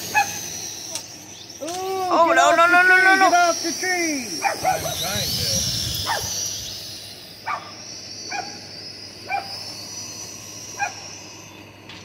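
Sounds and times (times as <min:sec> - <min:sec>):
drone propellers whining: 0:00.0 - 0:12.0
dog barking: 0:04.4 - 0:05.0, 0:07.5 - 0:07.7.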